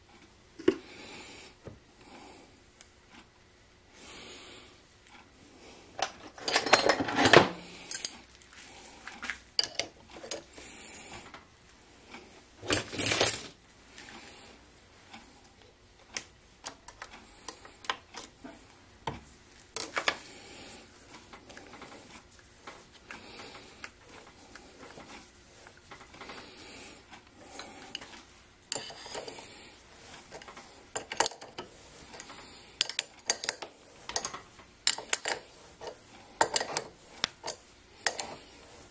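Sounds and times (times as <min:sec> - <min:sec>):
metallic clinks and scrapes: 0:06.0 - 0:08.3, 0:09.6 - 0:10.5, 0:12.6 - 0:13.6, 0:27.5 - 0:38.4.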